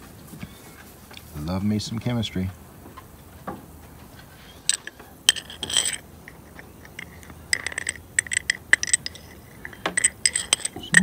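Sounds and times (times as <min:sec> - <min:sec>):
metal burrs clinking against glass jar: 0:04.6 - 0:11.0.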